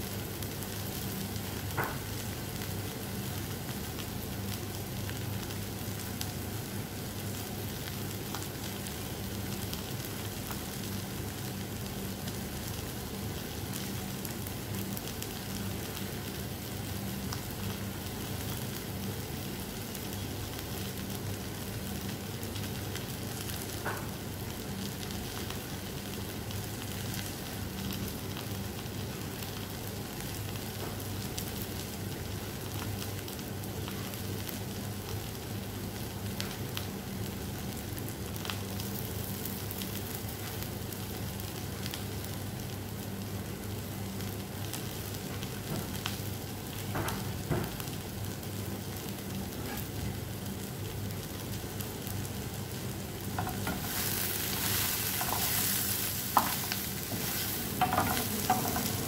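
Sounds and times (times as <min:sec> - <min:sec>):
vegetables sizzling in pan: 0:00.0 - 0:59.0
low steady hum: 0:51.1 - 0:59.0.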